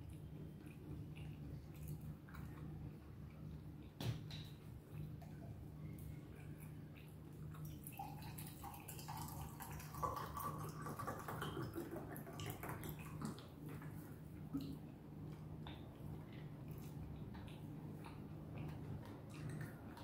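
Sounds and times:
man chewing food: 0.0s - 4.0s, 4.6s - 8.1s, 13.0s - 20.0s.

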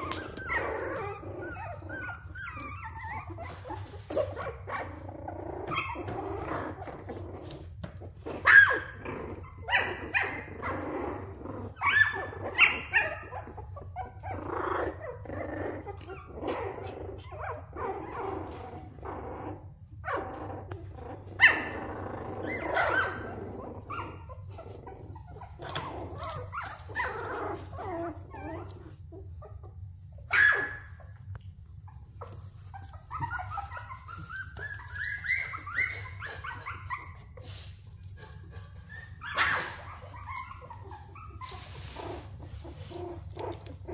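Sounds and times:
puppies growling: 0.0s - 43.9s
puppies yipping and barking: 0.0s - 43.9s
puppy whining: 0.0s - 43.9s.

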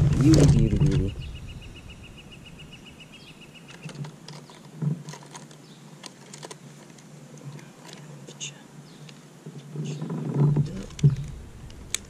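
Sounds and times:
clicks and knocks of handling gear: 3.7s - 8.1s.

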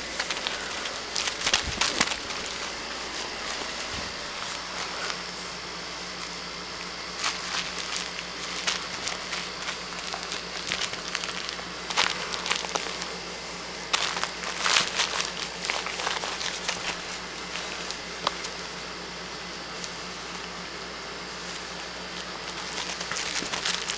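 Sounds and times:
dog scuffling on bedding: 0.0s - 5.6s.

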